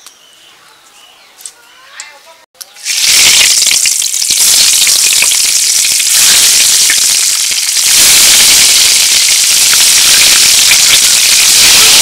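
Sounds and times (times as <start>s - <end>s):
eggs sizzling in hot oil: 2.8s - 12.0s.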